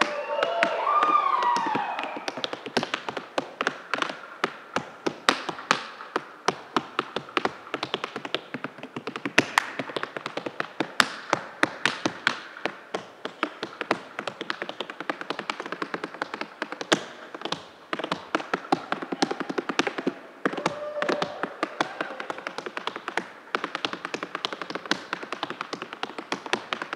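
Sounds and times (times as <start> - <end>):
tap shoes striking stage floor: 0.0 - 26.9.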